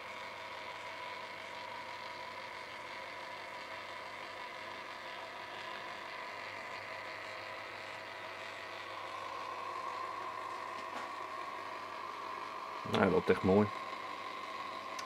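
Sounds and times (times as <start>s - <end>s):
motor and gears whining: 0.0s - 15.0s.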